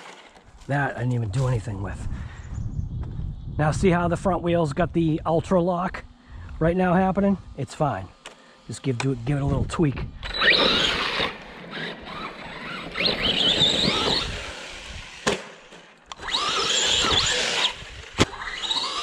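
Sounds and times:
electric motor whining: 6.4s - 19.0s.

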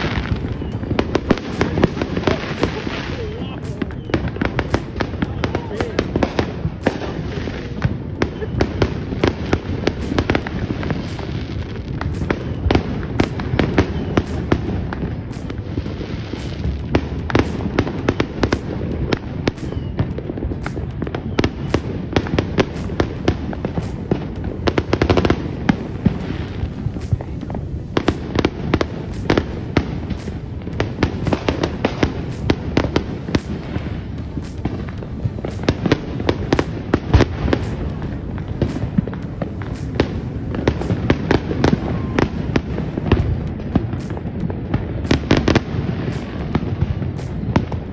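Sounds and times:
fireworks cracking and popping: 0.0s - 47.9s
low rumble of fireworks booms: 0.0s - 47.9s.

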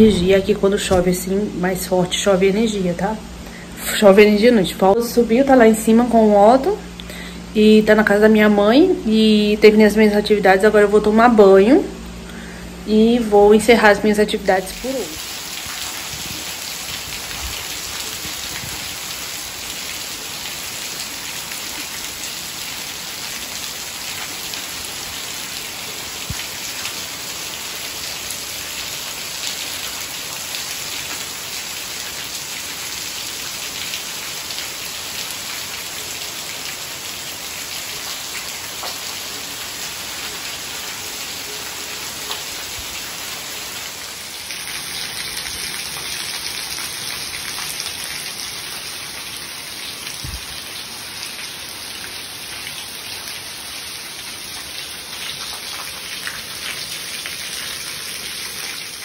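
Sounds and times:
rain falling on wet ground: 14.5s - 59.0s.

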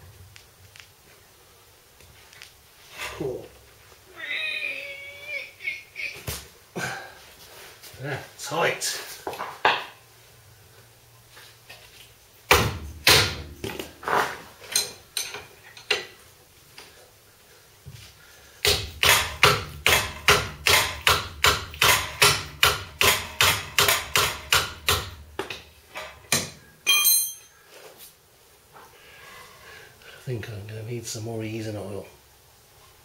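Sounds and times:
hammer striking steel: 12.5s - 13.8s, 18.6s - 25.2s, 26.3s - 27.5s.

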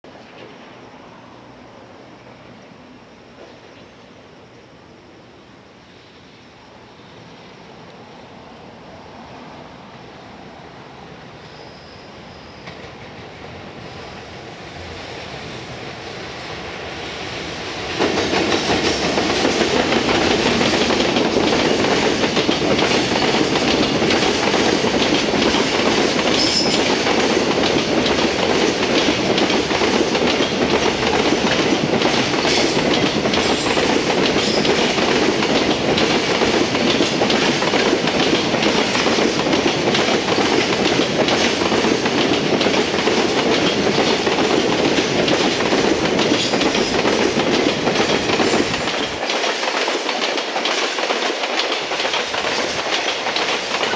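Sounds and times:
electric locomotive passing: 0.1s - 53.9s
train wheels rumbling on rails: 5.9s - 53.9s
wheels clickety-clack: 17.9s - 53.9s.

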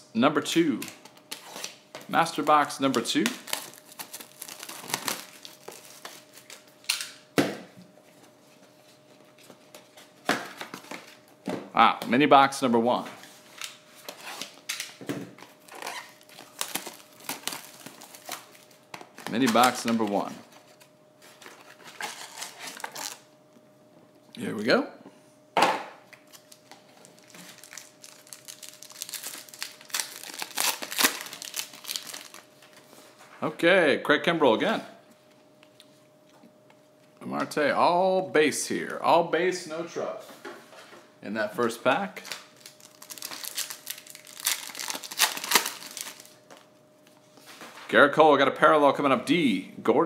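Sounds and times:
plastic wrap crinkling and tearing: 0.9s - 7.1s, 13.6s - 23.2s, 26.2s - 32.8s, 42.2s - 46.7s.

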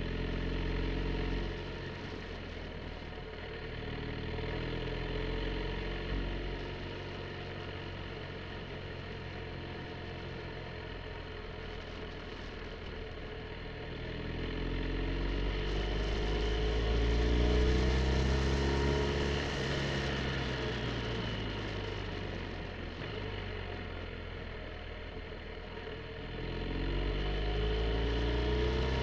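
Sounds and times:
motorcycle engine accelerating: 14.2s - 29.0s.

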